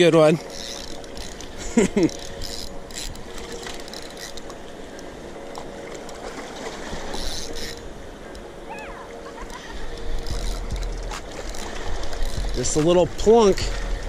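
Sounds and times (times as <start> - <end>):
spinning reel cranking: 0.5 - 4.4, 7.1 - 7.8, 9.9 - 12.9.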